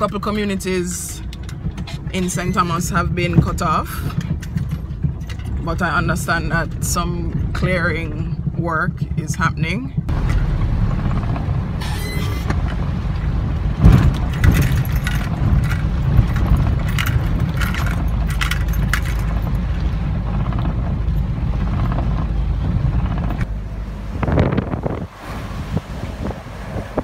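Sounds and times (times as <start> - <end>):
knocks and rattles over bumps: 0.0 - 23.5
car road noise rumble: 0.0 - 27.0.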